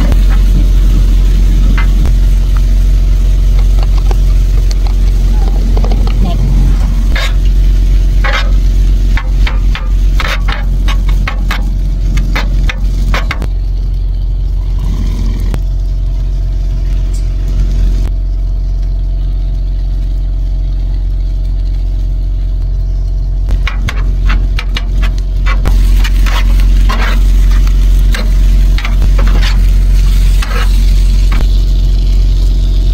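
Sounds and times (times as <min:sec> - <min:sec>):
food sizzling: 0:00.0 - 0:32.9
low hum: 0:00.0 - 0:32.9
metal spatula scraping griddle: 0:05.3 - 0:13.5, 0:23.6 - 0:31.5.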